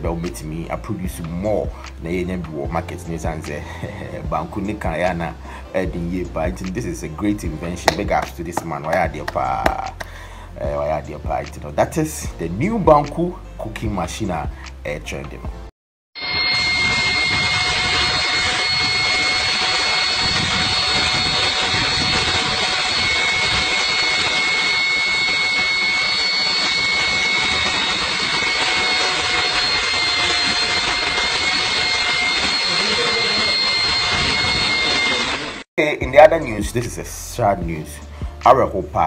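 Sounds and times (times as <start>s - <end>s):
electric mixing machine whining: 16.2s - 35.7s.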